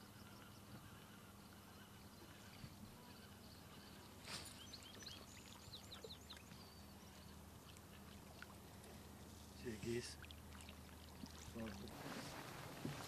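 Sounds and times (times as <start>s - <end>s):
faint bird chirping: 0.0s - 10.3s
low steady hum: 0.0s - 13.0s.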